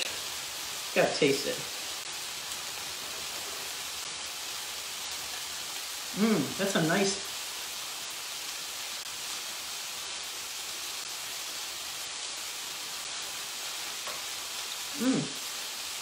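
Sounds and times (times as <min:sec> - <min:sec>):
vegetables sizzling in a frying pan: 0:00.0 - 0:16.0
person humming: 0:06.1 - 0:06.6, 0:14.9 - 0:15.4.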